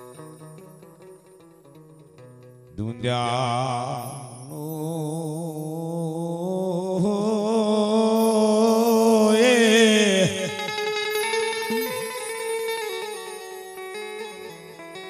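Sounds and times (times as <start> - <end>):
man singing folk song: 2.8 - 11.0
instrument playing quick notes: 11.3 - 12.5.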